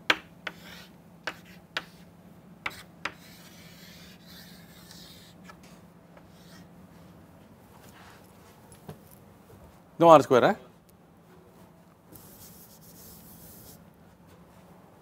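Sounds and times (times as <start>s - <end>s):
chalk tapping and scratching: 0.1s - 2.1s, 2.7s - 5.4s, 12.2s - 13.8s.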